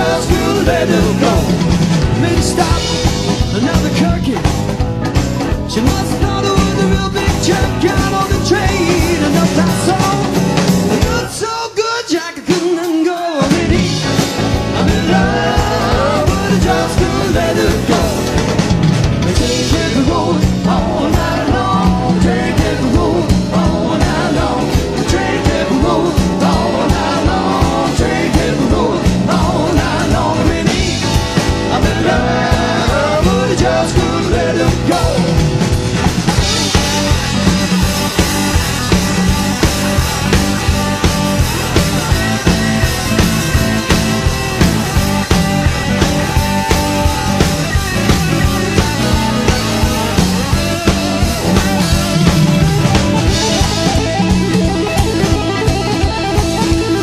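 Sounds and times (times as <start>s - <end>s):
person singing: 0.0s - 4.4s, 11.0s - 18.6s, 19.2s - 35.4s
rock band playing: 0.0s - 57.0s.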